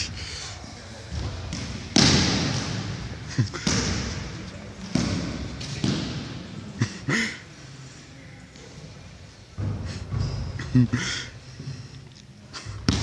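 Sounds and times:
basketballs bouncing on hardwood floor: 0:01.1 - 0:06.4.

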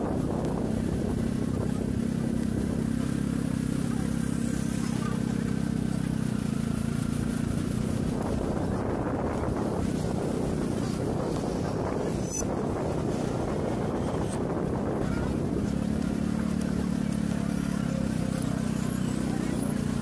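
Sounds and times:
wind noise on microphone: 0:00.0 - 0:03.2, 0:07.5 - 0:17.0
motor engine running: 0:00.0 - 0:20.0
street noise: 0:00.0 - 0:20.0.

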